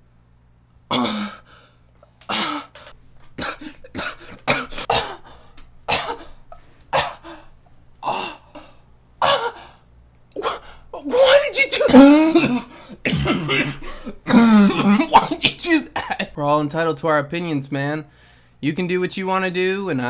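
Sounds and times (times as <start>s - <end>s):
man coughing and gagging: 0.9s - 1.5s, 2.3s - 9.8s, 10.4s - 16.4s.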